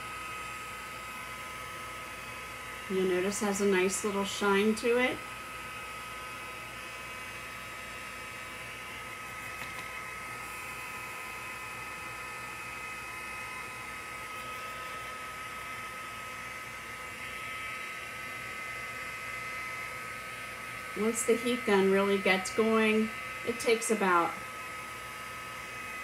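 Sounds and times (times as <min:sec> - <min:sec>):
heat gun fan humming: 0:00.0 - 0:26.0.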